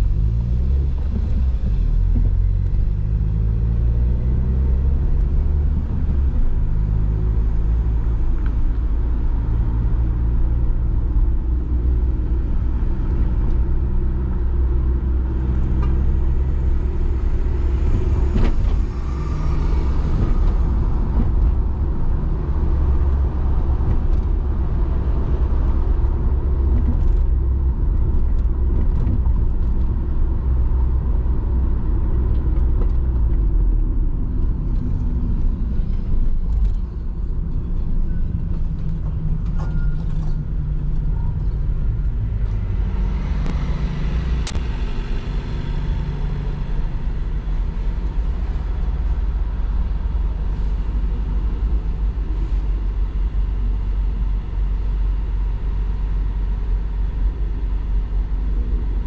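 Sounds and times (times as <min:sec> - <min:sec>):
road traffic rumble: 0:00.0 - 0:59.0
sharp click: 0:44.4 - 0:44.6.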